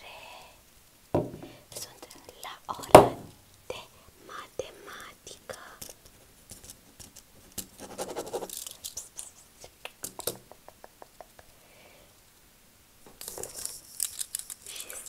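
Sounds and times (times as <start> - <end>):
scratching and rustling at microphone: 5.8 - 10.4.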